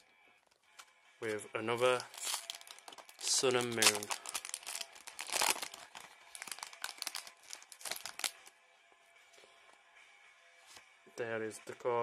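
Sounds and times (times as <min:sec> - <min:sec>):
foil wrapper crinkling and tearing: 0:01.8 - 0:08.5.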